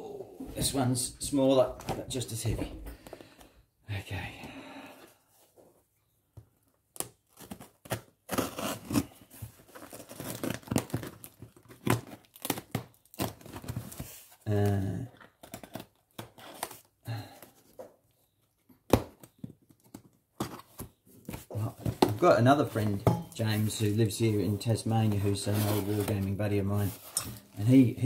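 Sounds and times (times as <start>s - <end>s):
tape and cardboard ripping: 7.0s - 14.0s.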